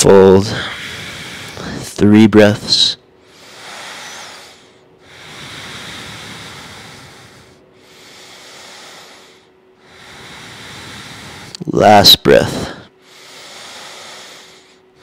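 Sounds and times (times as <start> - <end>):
person breathing deeply: 0.3 - 1.9, 3.2 - 11.6, 12.4 - 15.0.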